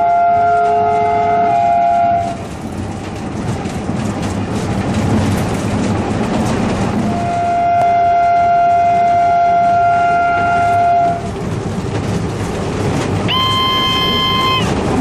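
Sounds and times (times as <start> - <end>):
locomotive horn chord: 0.0 - 2.4, 7.1 - 11.2, 13.3 - 14.8
locomotive running on track: 0.0 - 15.0.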